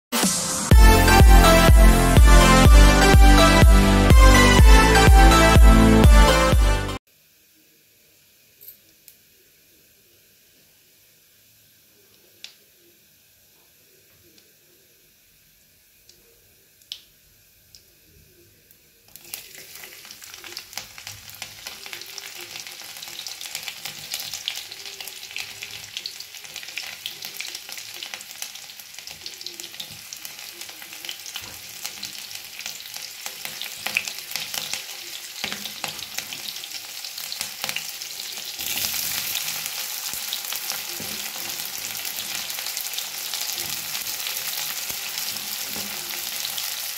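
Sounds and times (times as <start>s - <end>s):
food sizzling in hot oil: 19.1s - 46.9s.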